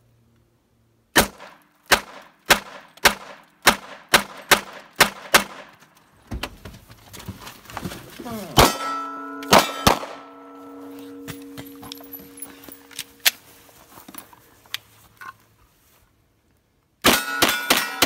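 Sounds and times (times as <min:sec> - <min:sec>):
gunshots: 0:01.2 - 0:05.7, 0:08.6 - 0:10.3, 0:17.0 - 0:18.0
metallic clang ringing: 0:08.6 - 0:13.3.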